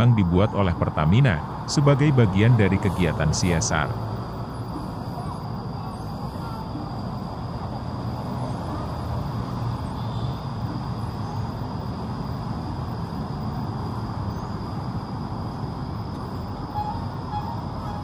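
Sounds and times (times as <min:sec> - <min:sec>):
low outdoor rumble: 0:00.0 - 0:18.0.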